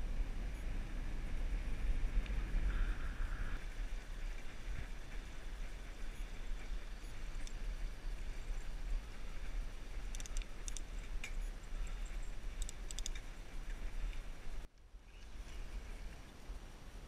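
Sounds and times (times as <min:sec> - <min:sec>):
road noise hiss: 0:00.0 - 0:17.0
light high clicking: 0:04.3 - 0:15.4.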